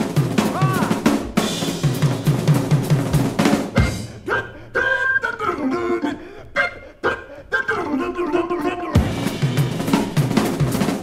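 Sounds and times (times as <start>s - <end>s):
drum kit fill: 0.0s - 4.3s, 8.9s - 11.0s.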